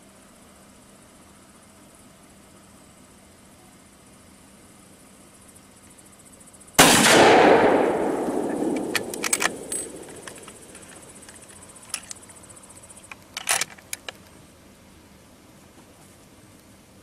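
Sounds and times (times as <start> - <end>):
rifle shot echoing: 6.8 - 10.8.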